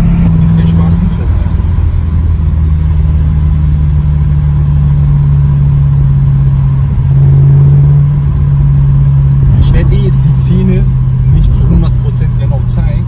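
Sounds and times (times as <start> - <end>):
car engine droning: 0.0 - 13.0
road noise: 0.0 - 13.0.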